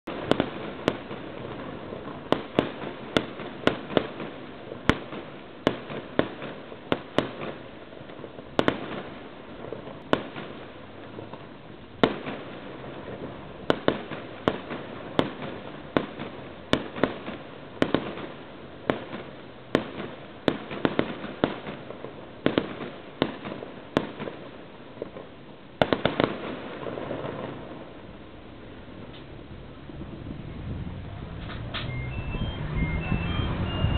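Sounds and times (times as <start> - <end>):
fireworks exploding: 0.0 - 33.9
steady rumble: 28.6 - 33.9.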